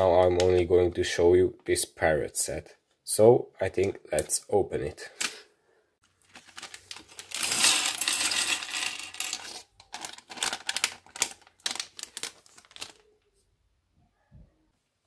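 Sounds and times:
plastic pieces clattering on table: 6.2 - 13.0
plastic bag rustling: 6.2 - 13.3.

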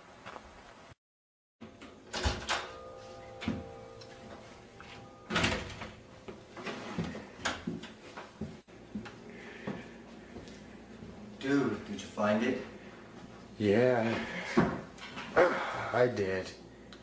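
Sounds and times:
door opening and closing: 1.7 - 2.8, 5.2 - 6.0
ringing tone: 2.5 - 6.4.

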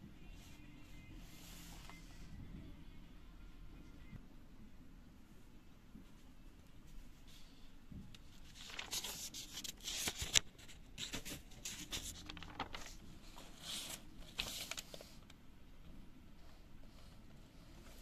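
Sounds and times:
book pages rustling: 8.2 - 15.2.

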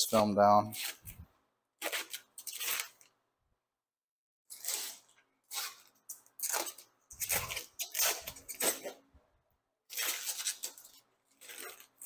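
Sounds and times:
plastic film peeling: 1.8 - 3.2, 4.5 - 9.0, 9.9 - 12.0.

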